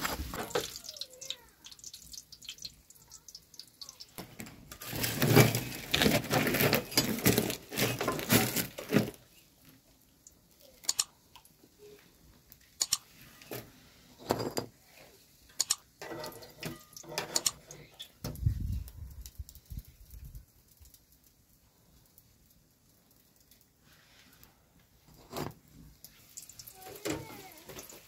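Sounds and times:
dumplings crackling in hot oil: 0:00.0 - 0:14.2, 0:14.8 - 0:28.0
metal skimmer clatter: 0:16.0 - 0:17.6.

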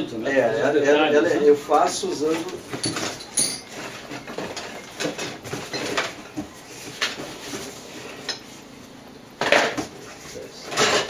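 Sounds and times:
metal tools clinking: 0:02.7 - 0:06.0.

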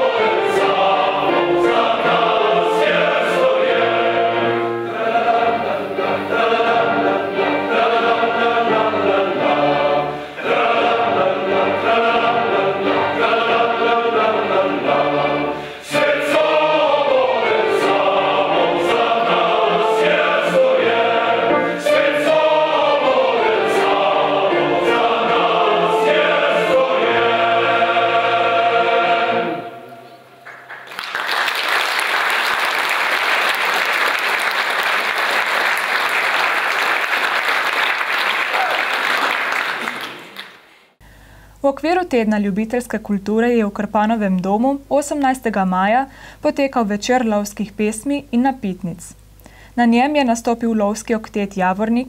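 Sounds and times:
string orchestra: 0:00.0 - 0:29.8
choir singing: 0:00.0 - 0:30.5
audience applause: 0:30.4 - 0:40.8.

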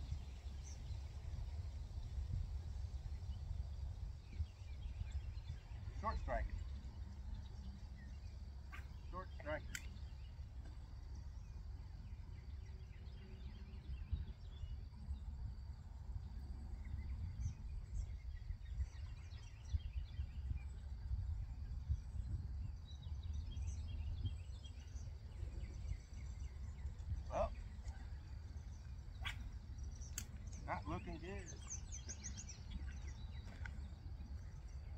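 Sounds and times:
small birds chirping: 0:00.0 - 0:34.9
wind rumbling on microphone: 0:00.0 - 0:34.9
bird call: 0:29.1 - 0:33.9.

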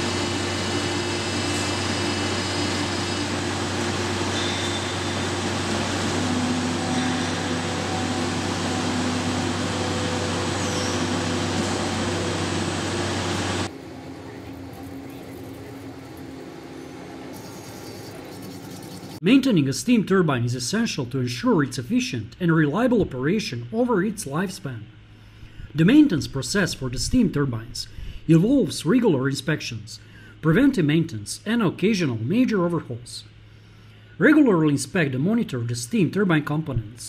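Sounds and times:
low machine hum: 0:00.0 - 0:37.0.

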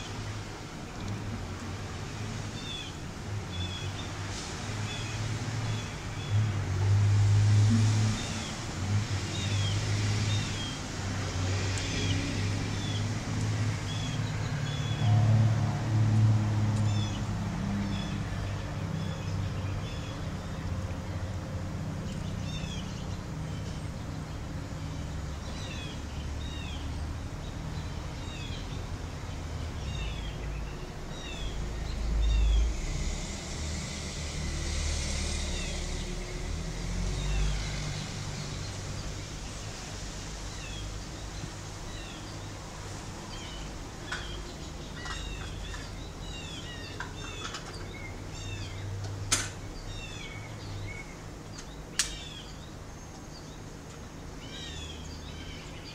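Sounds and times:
rushing noise: 0:00.0 - 0:23.5, 0:24.1 - 0:47.1
small birds chirping: 0:22.0 - 0:55.9
steady low rumble: 0:28.6 - 0:47.0
sharp click: 0:51.6 - 0:52.2.

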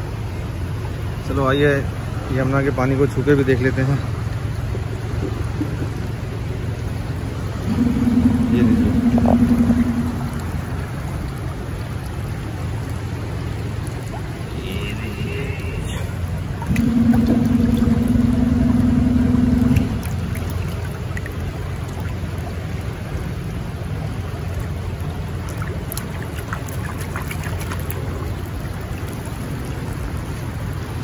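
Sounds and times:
river water trickling and splashing: 0:00.0 - 0:31.0
steady rushing water: 0:00.0 - 0:31.0
steady hum with overtones: 0:04.7 - 0:21.8.

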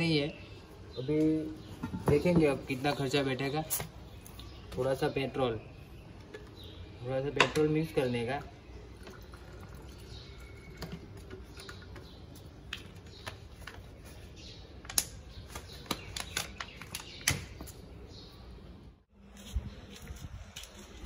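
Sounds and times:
plastic bottles clicking and tapping: 0:10.6 - 0:13.9.

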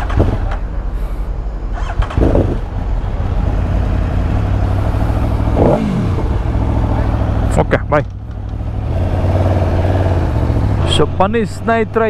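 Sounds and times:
motorbike engine droning: 0:01.6 - 0:12.0.

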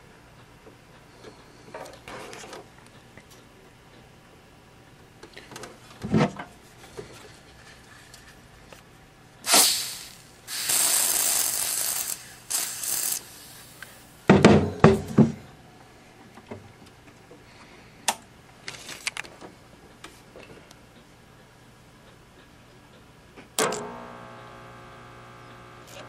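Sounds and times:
aerosol spray hissing: 0:09.4 - 0:14.0.

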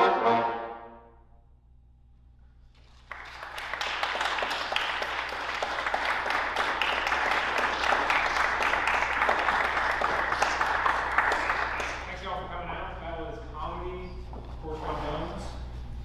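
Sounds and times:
audience applauding: 0:02.8 - 0:12.2.

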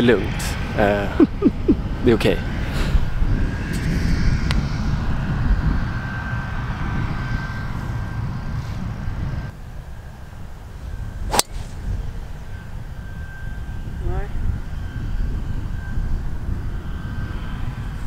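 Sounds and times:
wind rumble on microphone: 0:00.0 - 0:18.0
golf ball struck off tee: 0:11.3 - 0:11.8.

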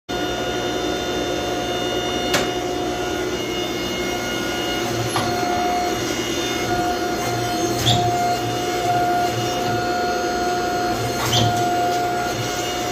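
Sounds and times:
forging press motor whir: 0:00.1 - 0:12.9
gas forge burner: 0:00.1 - 0:12.9.

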